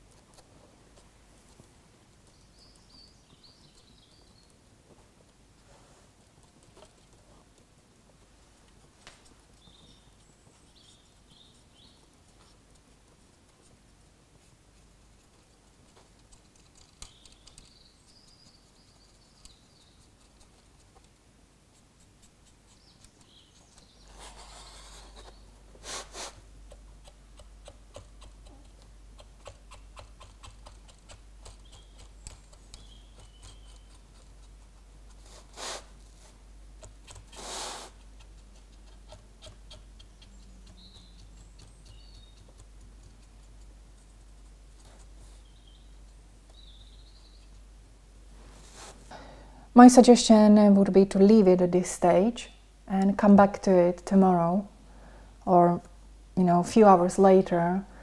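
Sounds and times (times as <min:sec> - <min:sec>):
cotton bud scratching on plastic: 0:14.4 - 0:45.9.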